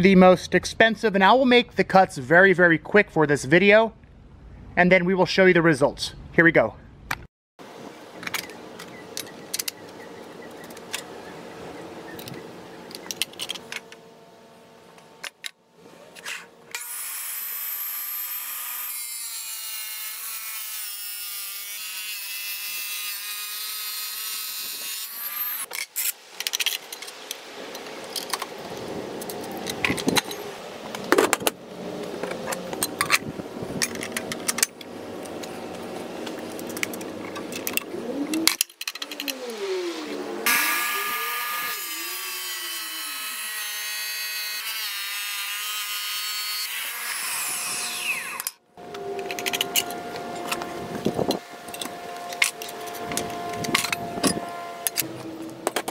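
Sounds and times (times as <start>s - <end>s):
tile saw motor running: 40.4s - 44.9s.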